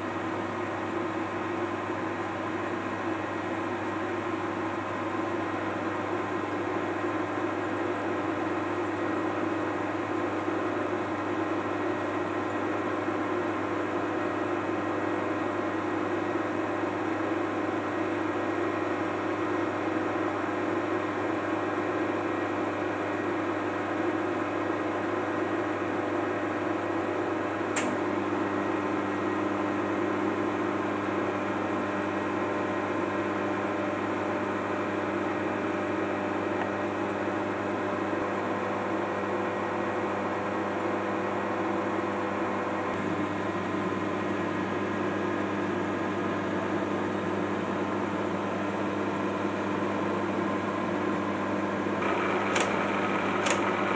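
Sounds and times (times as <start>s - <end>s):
sharp click: 27.7s - 28.0s, 52.4s - 52.8s, 53.4s - 53.7s
computer humming and whirring: 52.0s - 53.9s.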